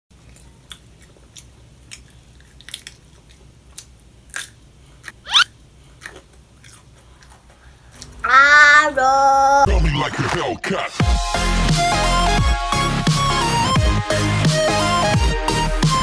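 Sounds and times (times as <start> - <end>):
child crunching cucumber: 0.2 - 7.5
short rising squeak: 5.2 - 5.5.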